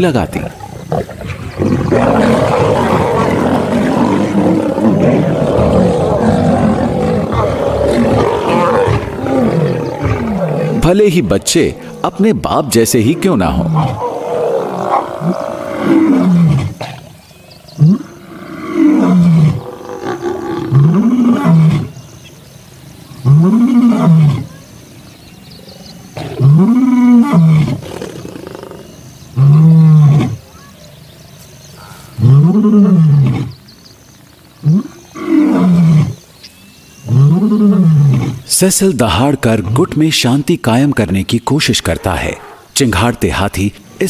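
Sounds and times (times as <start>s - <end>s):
lion roaring: 0.4s - 17.0s, 17.8s - 21.9s, 26.2s - 30.4s.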